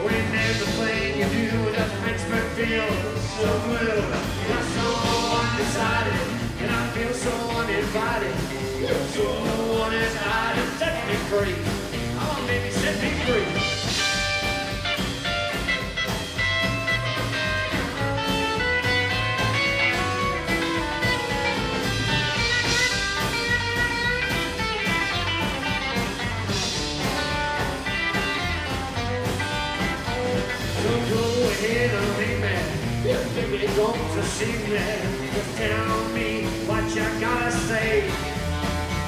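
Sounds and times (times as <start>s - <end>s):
person singing: 0.0s - 14.1s, 30.6s - 38.4s
bass guitar: 0.0s - 39.0s
drums: 0.0s - 39.0s
electric guitar lead notes: 0.0s - 39.0s.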